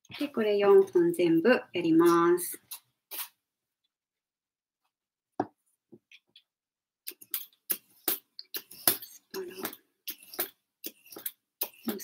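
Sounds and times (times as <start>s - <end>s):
vegetable peeler scraping: 8.6s - 12.0s.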